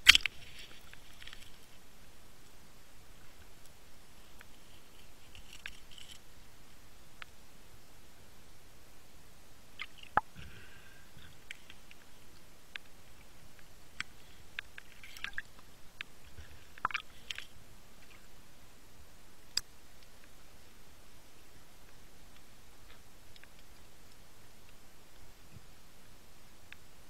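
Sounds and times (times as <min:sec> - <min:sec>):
steady underwater hiss: 0:00.0 - 0:27.0
clicks and knocks underwater: 0:16.4 - 0:17.5.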